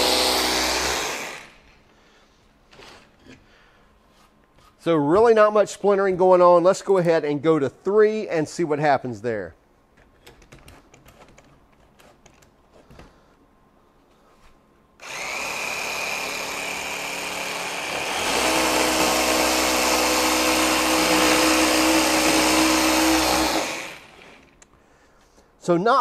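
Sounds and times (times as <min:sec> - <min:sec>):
jigsaw cutting wood: 0:00.0 - 0:01.7, 0:15.0 - 0:24.6.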